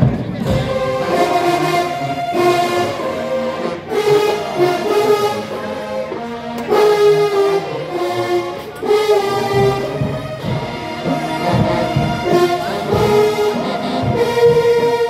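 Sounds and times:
marching band brass playing: 0:00.0 - 0:15.0.

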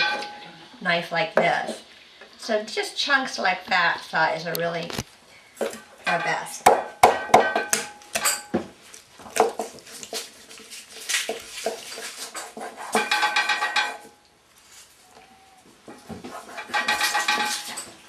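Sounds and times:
utensils clattering: 0:09.9 - 0:14.2, 0:16.3 - 0:18.0.

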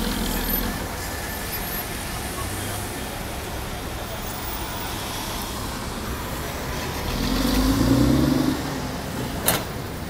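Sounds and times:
road traffic: 0:00.0 - 0:10.0
vehicle accelerating past: 0:06.7 - 0:09.0.

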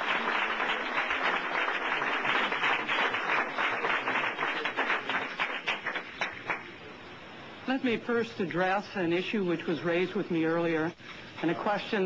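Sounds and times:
crowd applauding: 0:00.0 - 0:06.8.

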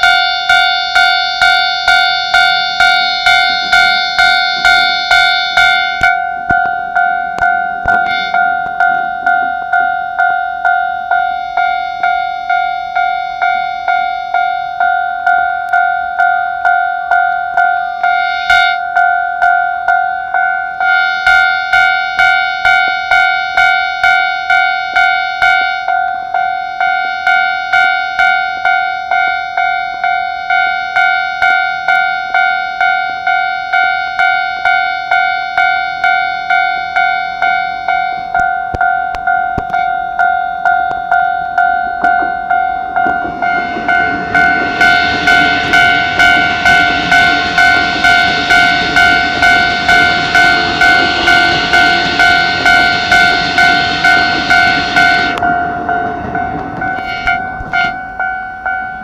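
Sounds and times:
level crossing warning bell: 0:00.0 - 0:59.0
train running noise: 0:00.0 - 0:59.0.

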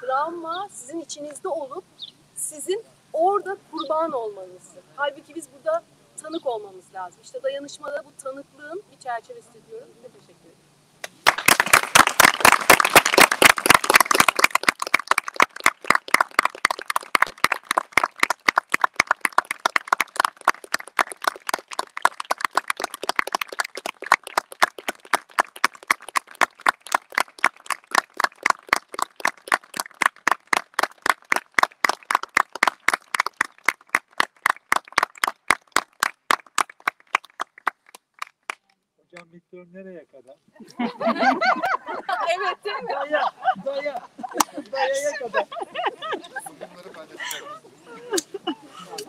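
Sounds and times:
small audience applauding: 0:11.0 - 0:38.7.

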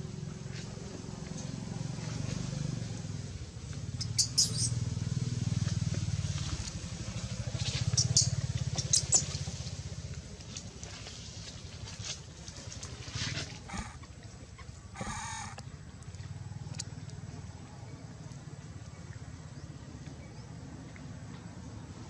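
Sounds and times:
motor running: 0:13.7 - 0:14.1, 0:14.9 - 0:15.7.

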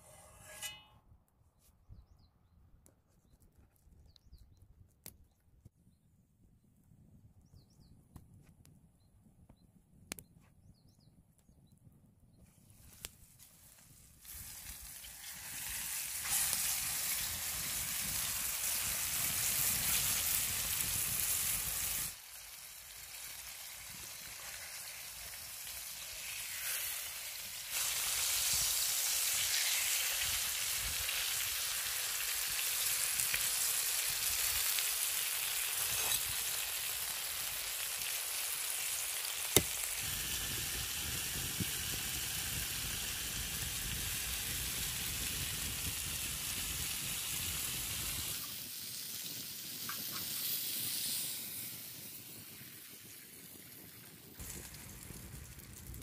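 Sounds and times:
food sizzling in a pan: 0:14.2 - 0:55.6.

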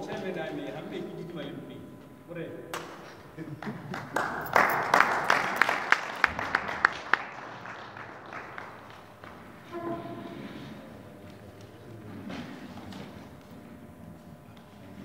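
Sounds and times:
sharp claps: 0:02.7 - 0:09.6
audience applauding: 0:02.7 - 0:10.3.

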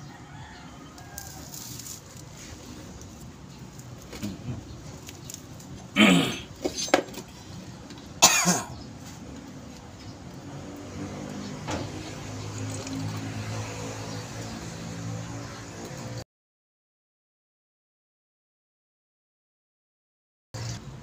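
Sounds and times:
man coughing: 0:06.0 - 0:06.5, 0:08.2 - 0:08.8.

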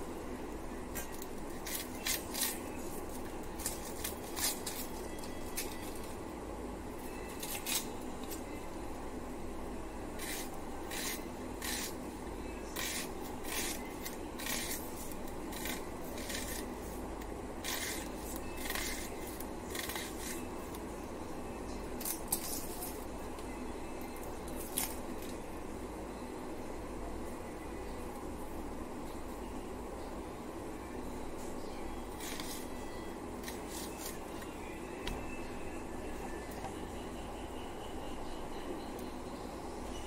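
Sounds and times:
steady low hum: 0:00.0 - 0:40.0
blade slicing vegetable: 0:10.2 - 0:12.0, 0:12.7 - 0:16.7, 0:17.6 - 0:20.5.

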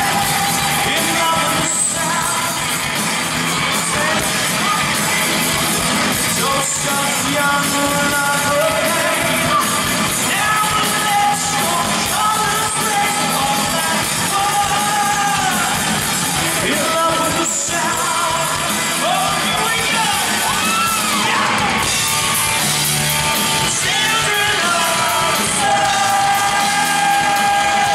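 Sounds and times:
live rock band playing: 0:00.0 - 0:27.9
man singing long notes: 0:23.6 - 0:27.9.

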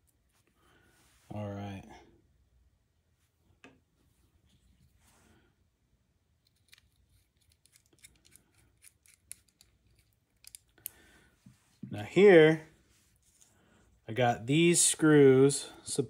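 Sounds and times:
small clicks from knife parts: 0:06.4 - 0:11.0.

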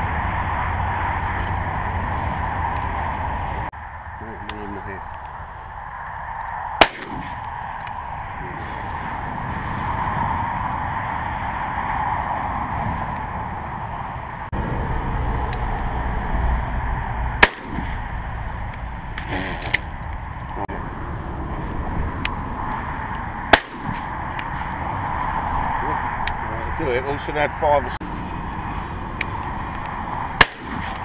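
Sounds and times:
wind on microphone: 0:00.0 - 0:31.0
shotgun shots: 0:06.8 - 0:07.4, 0:17.4 - 0:18.0, 0:23.5 - 0:24.0, 0:30.4 - 0:31.0.

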